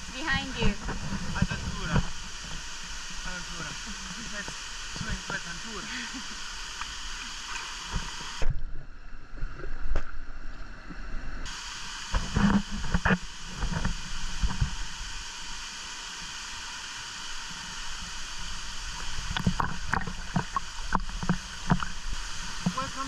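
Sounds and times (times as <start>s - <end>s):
waterfall rushing: 0.0s - 8.4s, 11.5s - 23.0s
muffled underwater sound: 0.0s - 8.6s, 19.1s - 23.0s
water splashing and sloshing: 0.0s - 23.0s.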